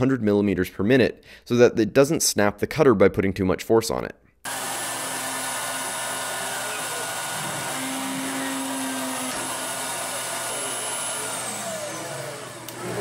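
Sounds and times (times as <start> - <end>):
mill spindle motor whining: 4.5 - 13.0.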